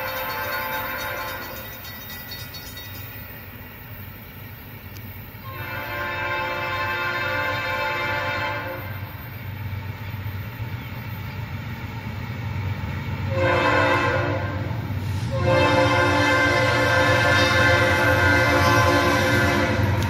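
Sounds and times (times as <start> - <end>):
locomotive air horn: 0.0 - 1.6, 5.4 - 9.2, 13.3 - 20.0.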